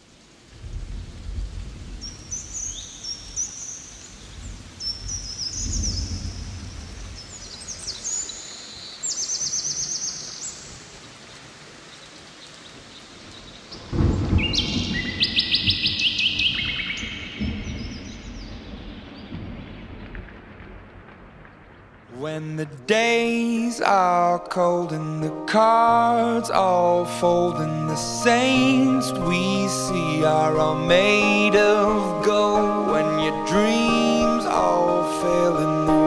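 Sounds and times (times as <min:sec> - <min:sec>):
rain-like hiss: 0:00.0 - 0:36.0
low rumbles: 0:00.5 - 0:02.7, 0:04.1 - 0:07.8
birds chirping and trilling: 0:01.8 - 0:11.2, 0:11.9 - 0:20.3.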